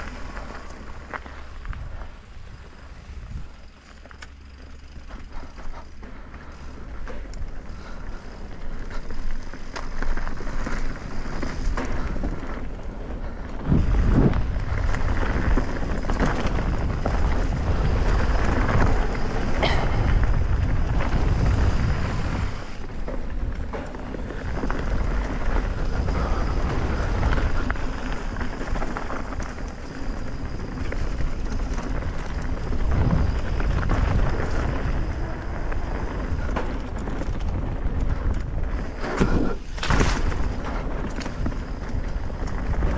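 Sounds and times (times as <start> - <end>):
bike tyres hissing on dirt: 0.0 - 42.9
wind rumbling on microphone: 0.0 - 42.9
bike knocking over bumps: 8.8 - 42.9.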